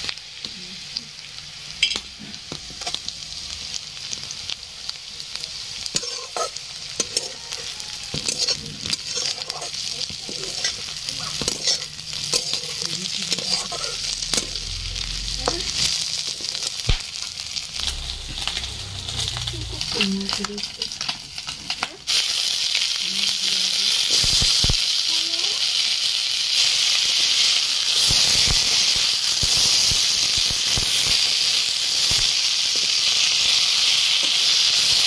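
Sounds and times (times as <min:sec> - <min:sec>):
fish and onions sizzling in oil: 0:00.0 - 0:35.0
metal spatula scraping pan: 0:05.9 - 0:16.7.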